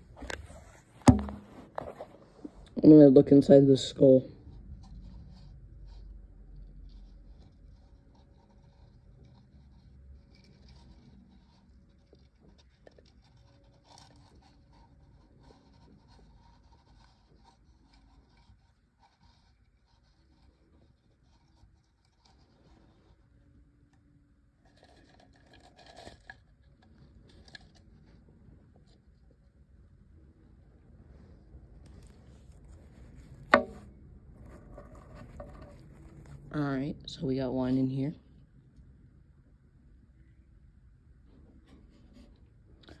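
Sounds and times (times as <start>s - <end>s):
faint scratching and rubbing: 0.0s - 24.0s, 24.6s - 38.3s, 41.2s - 43.0s.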